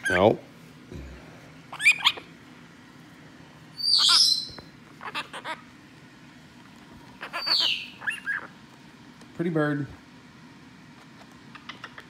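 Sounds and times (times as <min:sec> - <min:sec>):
parrot screeching: 0:01.7 - 0:02.3, 0:03.8 - 0:05.7, 0:07.2 - 0:08.6
parrot chirps: 0:01.7 - 0:02.4, 0:03.7 - 0:05.7, 0:07.2 - 0:08.6, 0:11.5 - 0:12.0.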